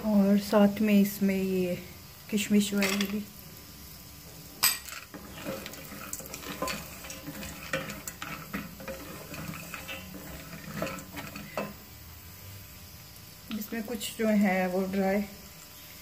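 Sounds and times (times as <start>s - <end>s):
ghee sizzling: 0.0s - 16.0s
nuts rattling against metal: 4.6s - 11.8s
spatula scraping metal pot: 4.8s - 11.9s.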